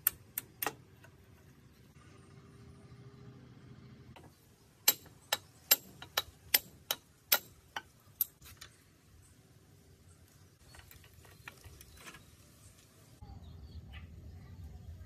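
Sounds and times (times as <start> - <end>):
steel tool tapping metal: 4.8 - 8.4.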